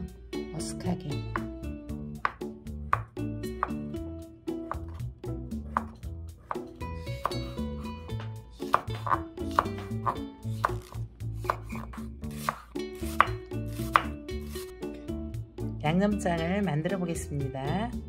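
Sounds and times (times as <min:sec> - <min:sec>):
light background music: 0:00.0 - 0:18.0
knife chopping on wooden board: 0:02.2 - 0:03.8, 0:04.6 - 0:07.6, 0:08.2 - 0:14.6.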